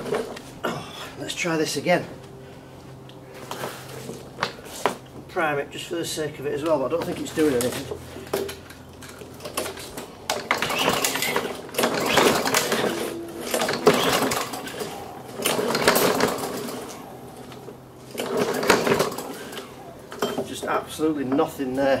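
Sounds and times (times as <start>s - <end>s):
lawnmower engine cranking: 0.0s - 0.6s, 6.1s - 22.0s.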